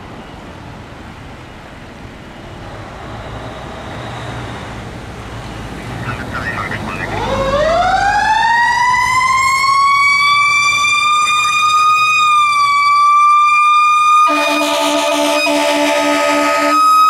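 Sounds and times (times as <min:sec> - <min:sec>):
fire truck siren wailing: 0:06.1 - 0:17.0
horn blast: 0:14.3 - 0:17.0.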